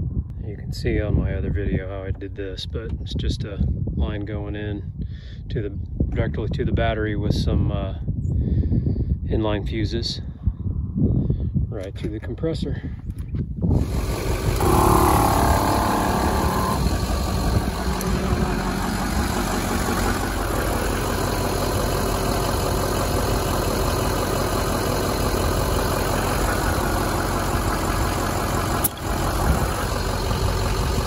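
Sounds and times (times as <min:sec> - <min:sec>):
air compressor droning: 0:13.7 - 0:31.0.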